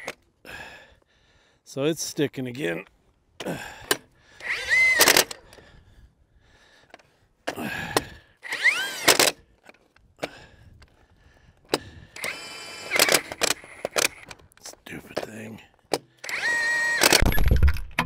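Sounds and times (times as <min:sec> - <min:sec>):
impact wrench whining: 0:00.0 - 0:00.2, 0:03.4 - 0:05.7, 0:07.5 - 0:10.4, 0:11.7 - 0:14.5, 0:15.9 - 0:18.0.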